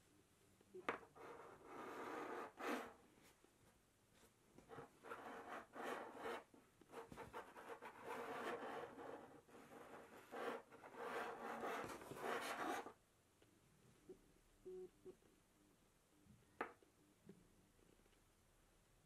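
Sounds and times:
cable scraping on wooden table: 1.1s - 3.0s.

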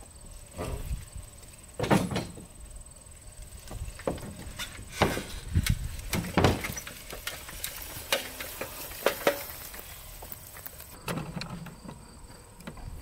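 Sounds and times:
dirt bike knocking on loading ramp: 1.8s - 2.5s, 3.7s - 9.7s.

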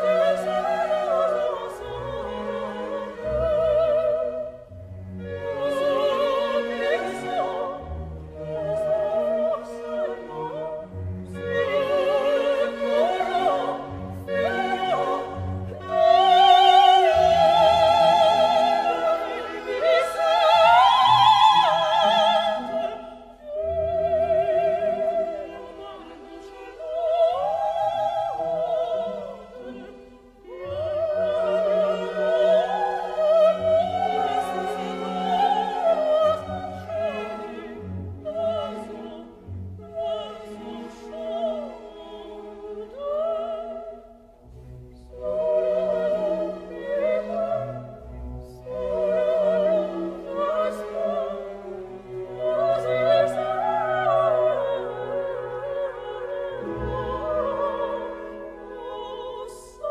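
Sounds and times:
operatic singing: 0.0s - 59.9s
orchestral accompaniment: 0.0s - 59.9s.

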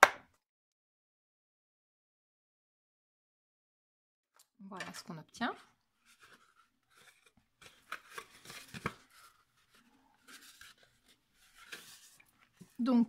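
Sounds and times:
card paper rustling and creasing: 6.0s - 12.9s.

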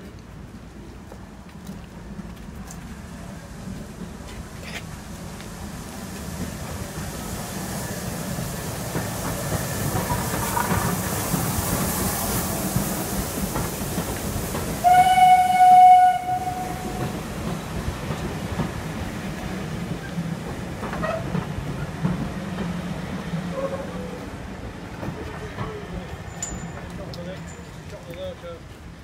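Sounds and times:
train carriages running past: 0.0s - 29.0s
locomotive whistle blast: 14.8s - 16.9s.

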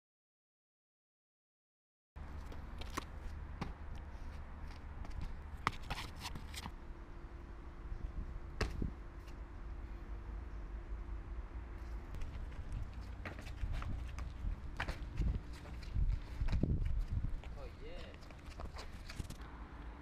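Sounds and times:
footfalls on concrete: 12.1s - 19.4s
wind rumble on microphone: 12.2s - 17.8s.

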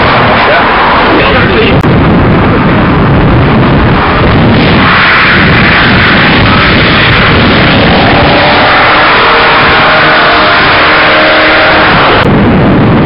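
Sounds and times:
car engine approaching: 0.0s - 12.3s
wind buffeting microphone: 0.0s - 13.0s.

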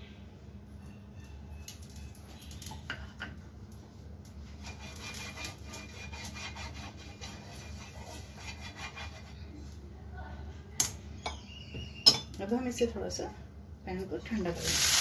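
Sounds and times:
brush scratching on pan: 4.4s - 9.6s.

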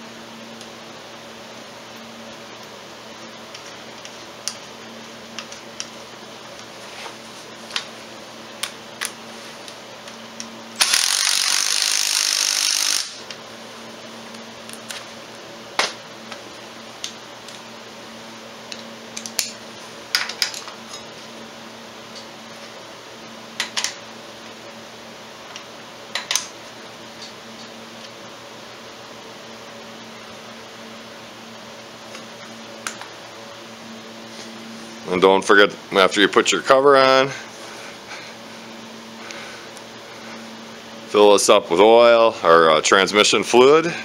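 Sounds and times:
cordless power tool running: 10.8s - 13.4s.

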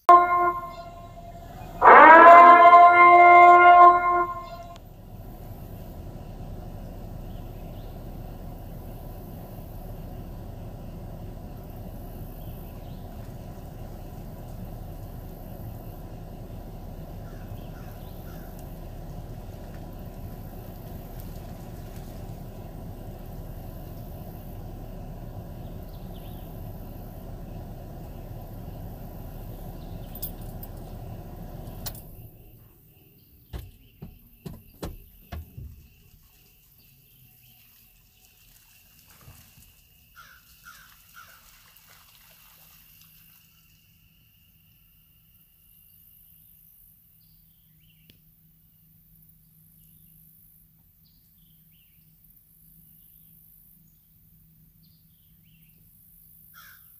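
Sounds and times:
low rumbling outdoor noise: 0.0s - 56.9s
sharp knocks: 33.5s - 35.8s.

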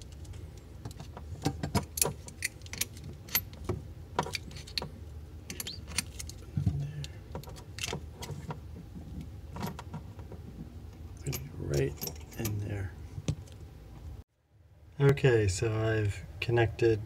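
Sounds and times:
brass fittings clinking: 1.4s - 3.6s, 5.5s - 6.4s, 11.2s - 12.7s.

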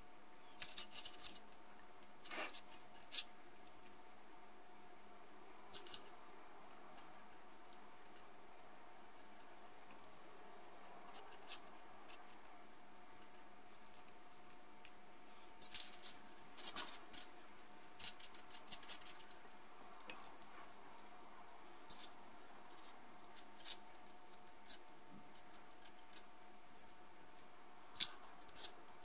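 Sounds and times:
spoons clicking and scraping: 15.6s - 17.4s, 18.0s - 20.5s.

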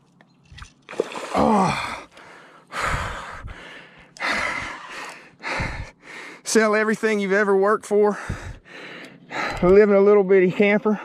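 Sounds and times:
man groaning: 1.3s - 2.0s
man gasping heavily: 1.4s - 6.4s, 8.1s - 9.7s.

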